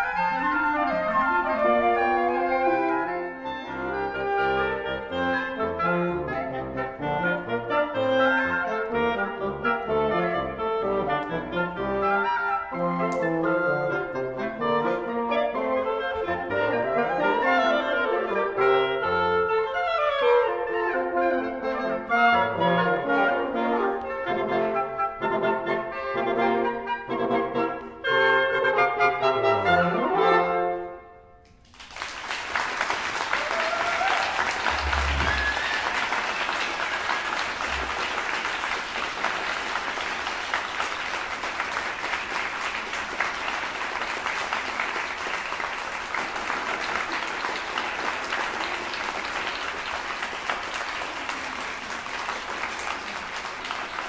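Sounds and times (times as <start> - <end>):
woodwind quintet playing: 0.0 - 31.3, 32.8 - 54.0
audience applauding: 31.6 - 54.0.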